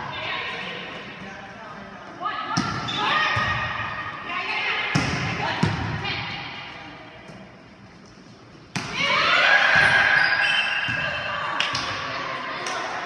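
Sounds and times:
players shouting and cheering: 8.8 - 13.0.

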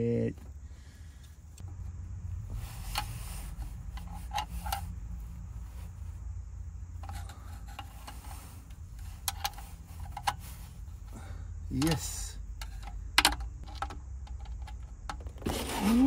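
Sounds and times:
low steady hum: 0.0 - 16.0
hand tools scraping metal: 15.4 - 16.0.

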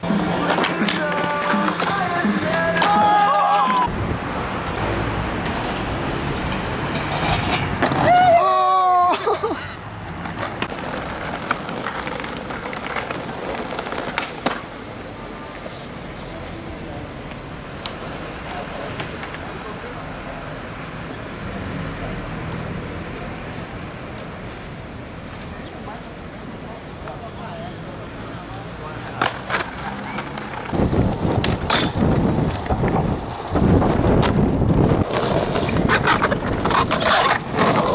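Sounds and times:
skateboard clicks and knocks: 0.0 - 3.9, 5.4 - 16.3, 17.2 - 19.6, 29.0 - 37.9
skateboard wheels rolling on paving: 0.0 - 37.9.

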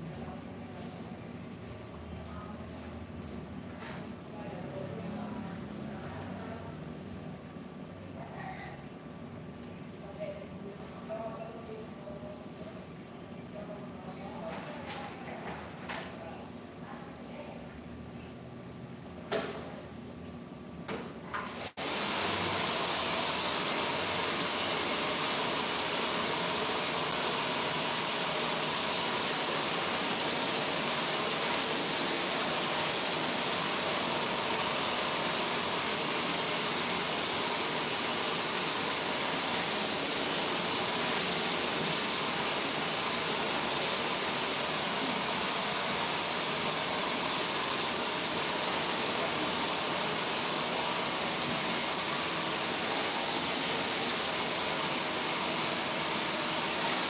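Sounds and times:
hair dryer blowing: 21.6 - 57.0.

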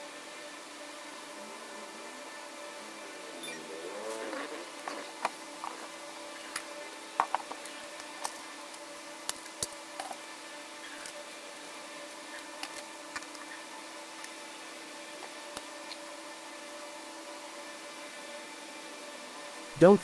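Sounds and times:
faint steady hum: 0.0 - 20.0
packaging clicks taps and crinkles: 12.3 - 13.5.

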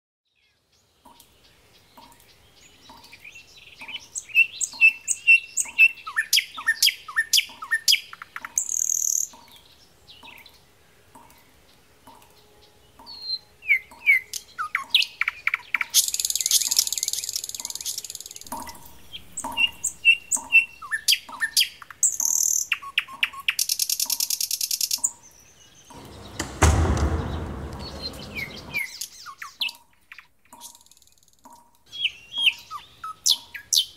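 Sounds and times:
loud low rough noise: 25.9 - 28.8.

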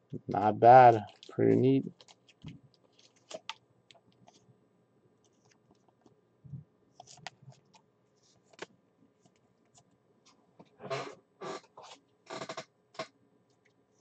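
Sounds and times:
trading cards clicking and rustling: 0.9 - 3.6.

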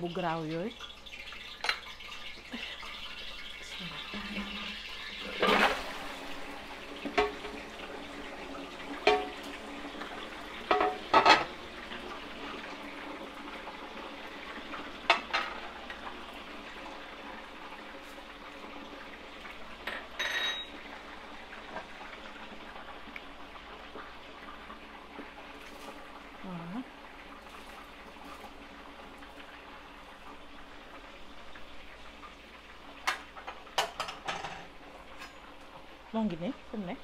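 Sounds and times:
meat sizzling in hot oil: 0.0 - 37.0
meat knocking against metal pot: 7.0 - 7.6, 9.0 - 9.5, 10.7 - 11.6
short ringing clink: 20.2 - 20.7.

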